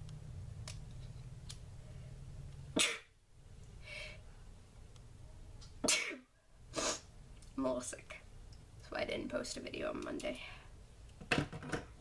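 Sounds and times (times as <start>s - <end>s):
person breathing sharply: 3.8s - 4.3s.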